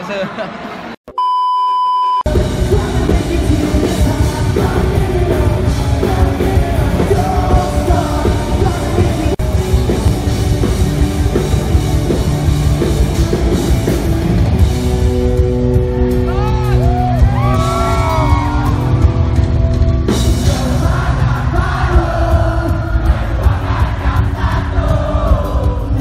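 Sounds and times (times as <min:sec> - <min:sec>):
test-card beep: 0:01.1 - 0:02.3
singer: 0:02.3 - 0:09.4, 0:20.3 - 0:26.0
live rock band playing: 0:02.3 - 0:26.0.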